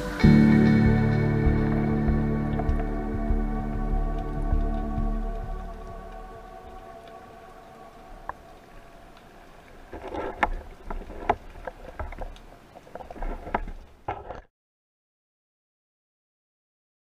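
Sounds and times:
soft background music: 0.0 - 8.7
underwater watery rustle: 0.0 - 14.5.

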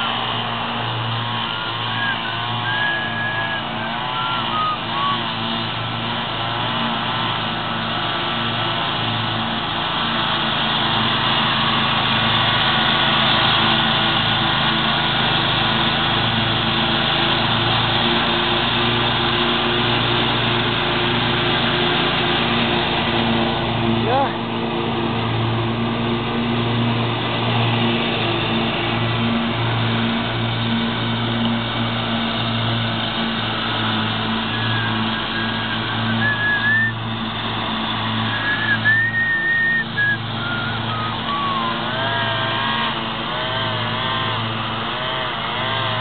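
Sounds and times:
ride-on mower engine droning: 0.0 - 46.0
wavering high tones: 38.4 - 42.3.

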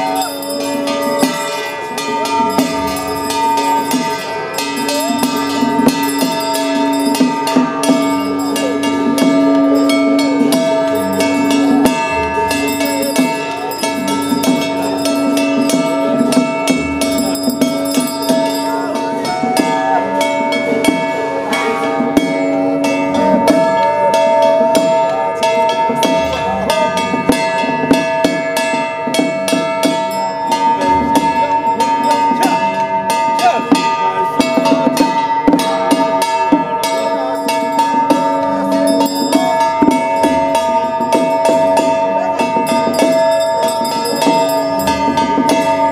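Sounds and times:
cymbals crashing: 0.0 - 45.9
held steady tones: 0.0 - 45.9
drums struck quickly: 0.9 - 45.9.

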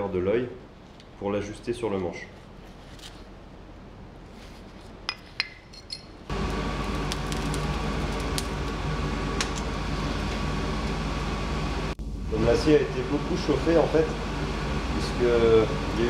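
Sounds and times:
fire crackles: 6.3 - 16.0
forge fire rushing: 6.3 - 16.0.

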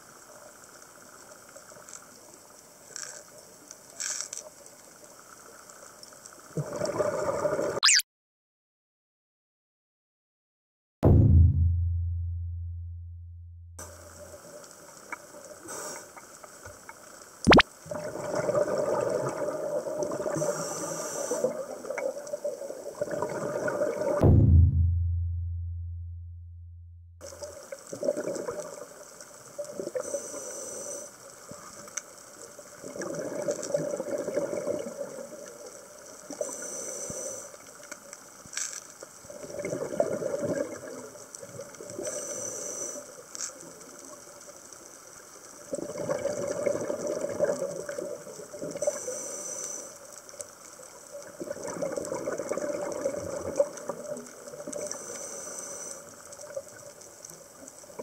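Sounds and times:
regulator inhale hiss: 15.6 - 16.4, 20.3 - 21.8, 30.0 - 31.6, 36.3 - 37.8, 42.0 - 43.5, 48.8 - 50.2, 54.8 - 56.3
exhaled air bubbling: 17.4 - 20.4, 39.4 - 41.0, 45.7 - 47.9, 51.3 - 54.0.

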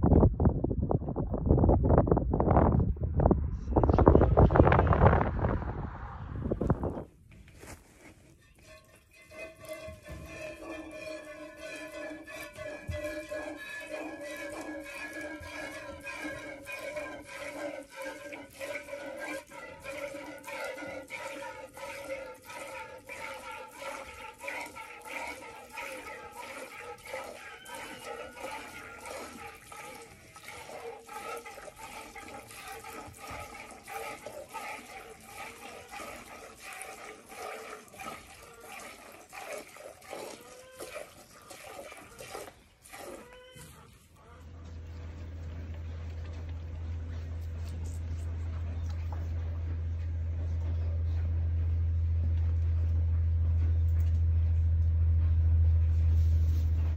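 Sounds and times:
milk squirting into pail: 9.3 - 44.1.

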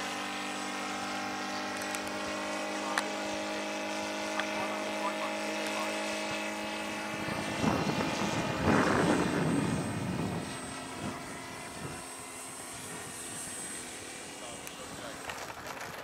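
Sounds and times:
model airplane engine running: 0.0 - 16.0
loud rough rushing noise: 5.8 - 10.5.

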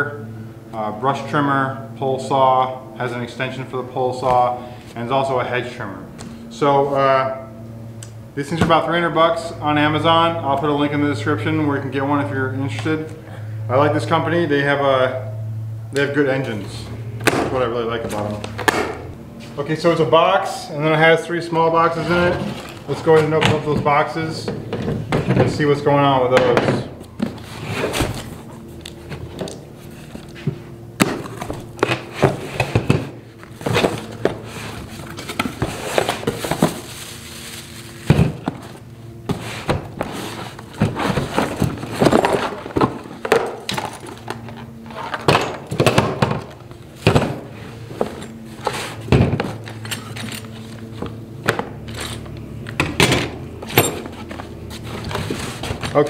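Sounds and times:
cardboard rustling: 27.2 - 49.8, 54.0 - 56.0
plastic wrapping crinkling: 35.7 - 38.1.

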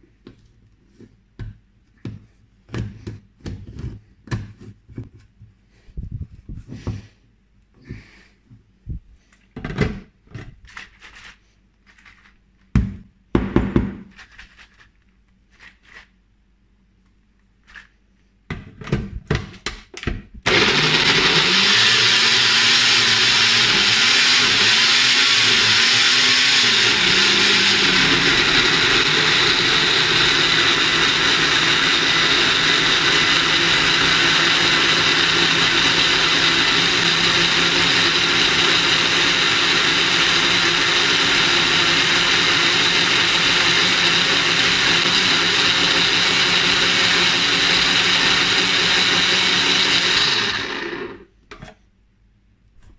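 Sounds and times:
blender running: 20.5 - 51.3.

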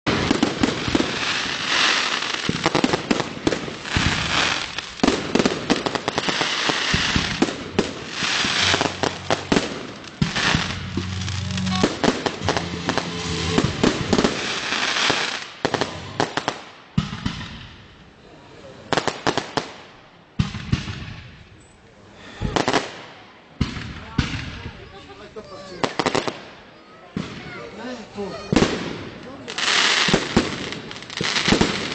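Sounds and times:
fireworks banging: 0.1 - 17.8
fireworks crackling hiss: 0.1 - 17.8, 27.2 - 31.9.

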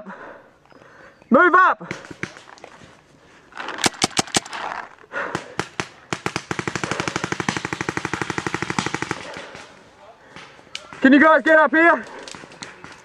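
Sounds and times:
paintball marker firing: 3.8 - 4.6.

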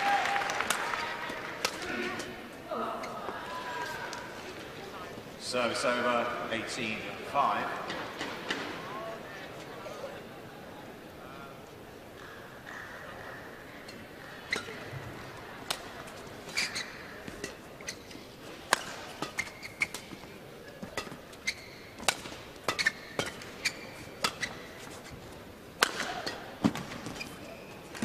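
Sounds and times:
arena crowd noise: 0.0 - 28.0
shoes squeaking on court: 13.8 - 28.0
racket hitting shuttlecock: 14.5 - 14.9, 15.6 - 25.2, 25.8 - 27.4.

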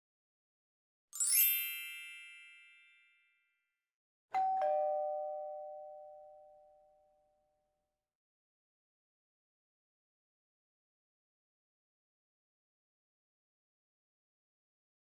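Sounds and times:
shimmering chime flourish: 1.2 - 3.0
two-note ding-dong chime: 4.4 - 7.5.

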